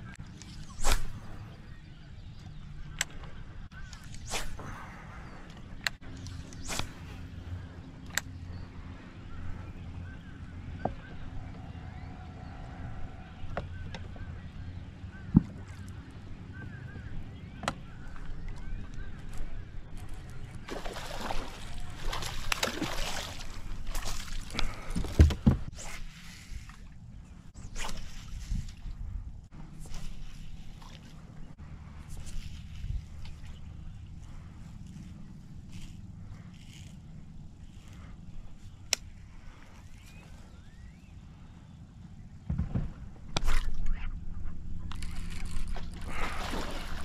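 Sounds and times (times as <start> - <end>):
low steady rumble: 4.7 - 47.0
fish splashing in water: 20.7 - 24.6, 46.1 - 47.0
thumps and crackly knocks: 42.4 - 43.4.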